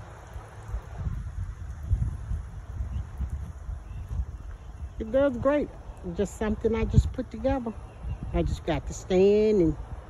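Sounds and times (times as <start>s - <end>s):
fountain splashing into bowl: 0.0s - 3.8s
wind buffeting microphone: 0.0s - 10.0s.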